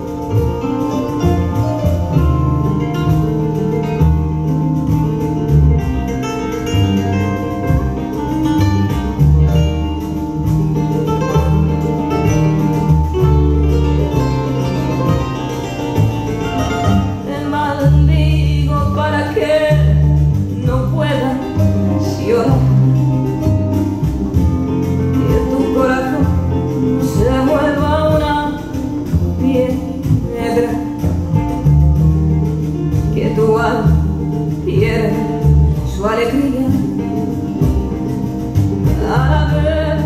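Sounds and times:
guitar over deep bass line: 0:00.0 - 0:40.0
woman singing: 0:17.1 - 0:23.4, 0:25.1 - 0:31.5, 0:32.9 - 0:40.0.

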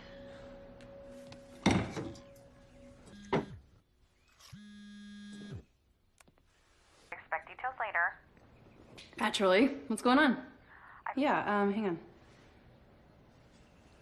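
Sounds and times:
background music: 0:00.0 - 0:03.3.

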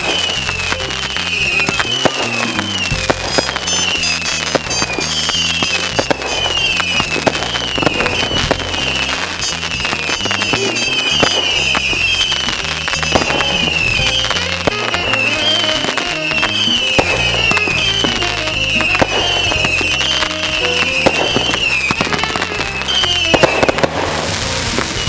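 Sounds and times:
fireworks bangs and crackling: 0:00.0 - 0:25.0
high warbling tone sweeping down: 0:00.0 - 0:25.0.

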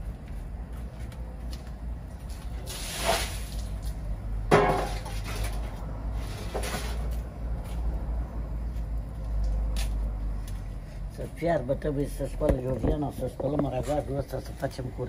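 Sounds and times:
cookware knocks and clinks: 0:04.5 - 0:05.0.

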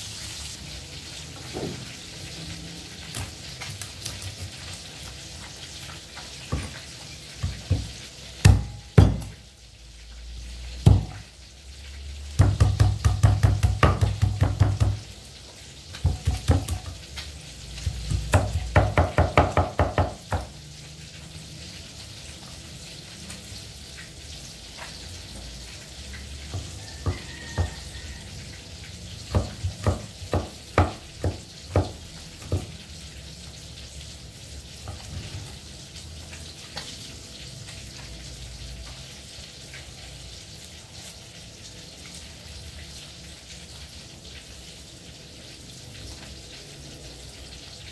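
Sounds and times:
oil sizzling in a wok: 0:00.0 - 0:47.9
knife chopping on wooden board: 0:07.4 - 0:09.3, 0:12.4 - 0:15.0, 0:16.0 - 0:17.0, 0:17.8 - 0:20.5, 0:29.3 - 0:32.7.

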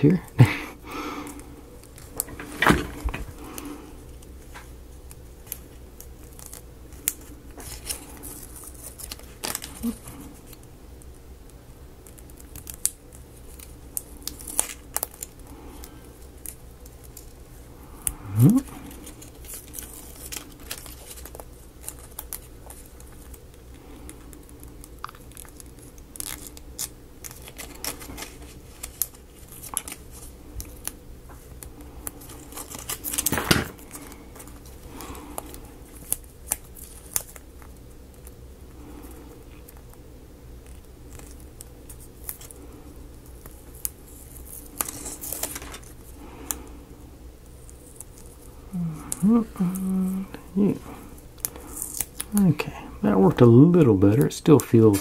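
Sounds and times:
paper pages being folded: 0:01.3 - 0:10.7, 0:12.0 - 0:40.0, 0:40.6 - 0:46.8, 0:47.4 - 0:52.5, 0:53.1 - 0:55.0
paper rustle: 0:01.8 - 0:10.6, 0:18.6 - 0:39.8, 0:40.6 - 0:46.6, 0:54.1 - 0:55.0.

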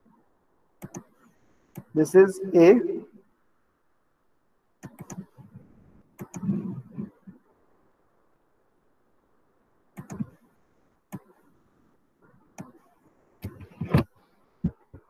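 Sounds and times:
computer mouse clicking: 0:00.8 - 0:01.9, 0:04.8 - 0:05.4, 0:06.2 - 0:07.1, 0:10.0 - 0:10.4, 0:11.1 - 0:11.4, 0:12.6 - 0:14.1.

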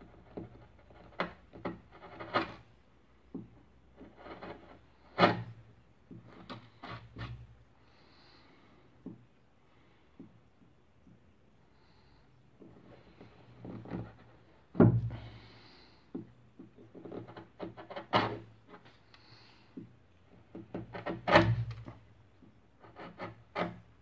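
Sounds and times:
wood chisel cutting and scraping: 0:00.0 - 0:02.7, 0:03.9 - 0:05.6, 0:06.3 - 0:07.5, 0:12.8 - 0:14.5, 0:16.8 - 0:18.9, 0:20.6 - 0:22.0, 0:22.8 - 0:24.0.

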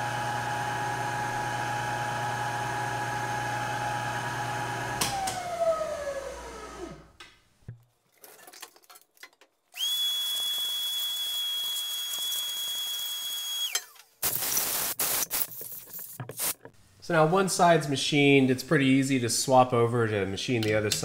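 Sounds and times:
motor whine winding down: 0:00.0 - 0:07.2, 0:09.8 - 0:14.0
high-pitched whistle with hiss: 0:09.8 - 0:13.8.

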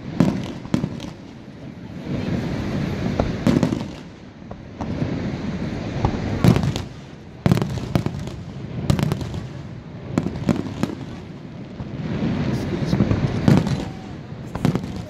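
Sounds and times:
fireworks bursting: 0:00.0 - 0:15.0.

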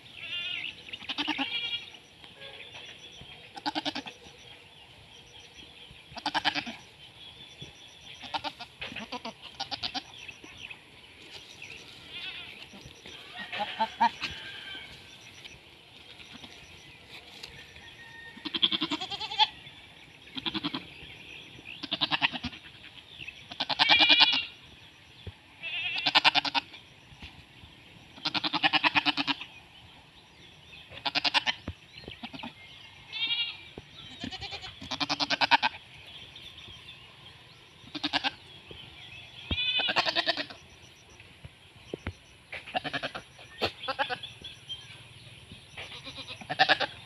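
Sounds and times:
goats bleating: 0:00.1 - 0:04.4, 0:06.2 - 0:06.9, 0:08.0 - 0:10.4, 0:11.4 - 0:17.6, 0:18.3 - 0:19.6, 0:20.2 - 0:21.0, 0:21.7 - 0:24.6, 0:25.6 - 0:26.8, 0:28.1 - 0:29.5, 0:30.9 - 0:35.9, 0:37.8 - 0:38.5, 0:39.3 - 0:40.7, 0:42.6 - 0:44.4, 0:45.8 - 0:47.0.

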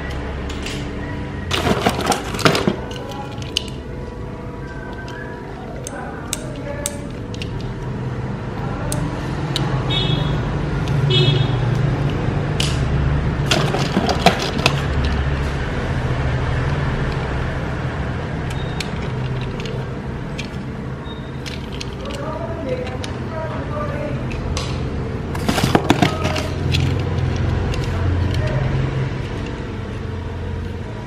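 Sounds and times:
steady low hum: 0:00.0 - 0:31.0
metal toy cars clattering: 0:01.5 - 0:03.8, 0:13.4 - 0:15.2, 0:21.4 - 0:23.2, 0:25.3 - 0:28.7.

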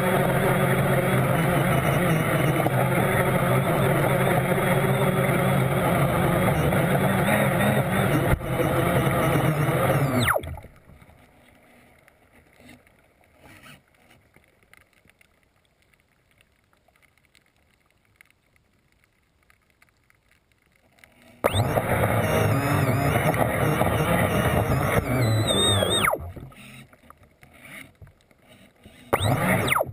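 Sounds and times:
boat motor high whine: 0:00.0 - 0:12.0, 0:21.3 - 0:29.9
water rushing underwater: 0:00.0 - 0:12.1, 0:21.4 - 0:27.2.

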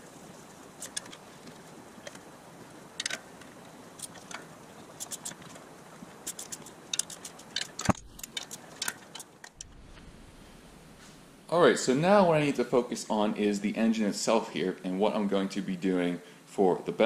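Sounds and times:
faint steady hiss: 0:00.0 - 0:17.0
small metal parts clicking: 0:00.8 - 0:02.2, 0:03.0 - 0:05.6, 0:06.2 - 0:09.7.

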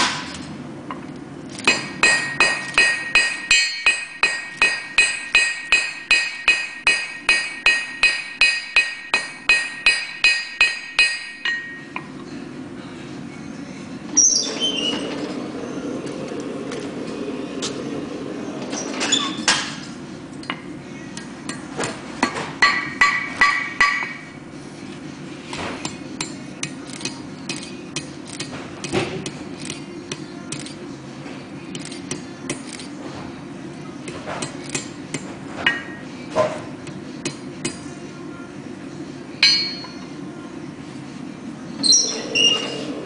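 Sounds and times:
hammer striking anvil: 0:01.6 - 0:12.1, 0:21.5 - 0:24.4, 0:39.4 - 0:40.0
anvil ringing: 0:01.7 - 0:12.0, 0:39.4 - 0:40.0.

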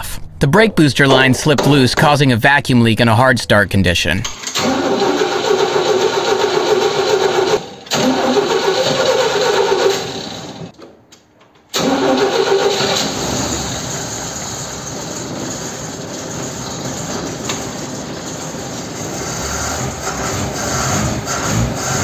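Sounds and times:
car engine hard starting: 0:04.4 - 0:10.7, 0:11.7 - 0:22.0.

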